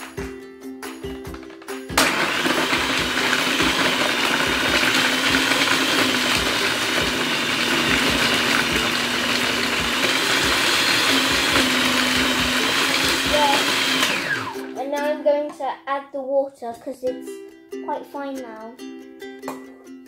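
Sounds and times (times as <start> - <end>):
blade chopping nuts: 1.3 - 14.7
food processor motor whining: 1.3 - 14.8.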